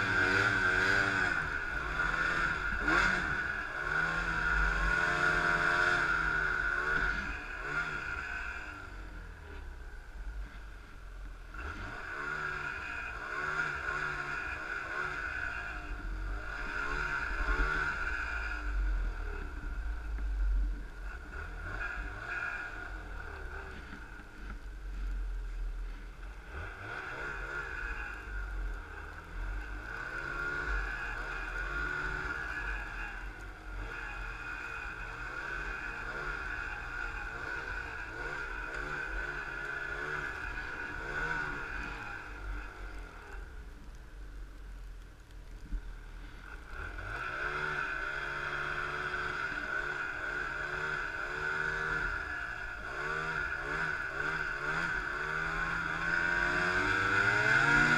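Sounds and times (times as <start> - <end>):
snowmobile engine revving: 0.0 - 10.7, 11.5 - 25.2, 25.8 - 43.6, 46.2 - 57.9
low rumble: 15.1 - 49.1.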